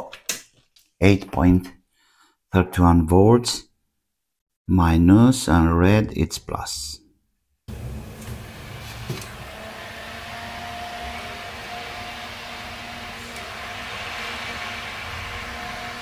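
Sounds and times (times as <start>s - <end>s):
cooling fan running: 7.7s - 16.0s.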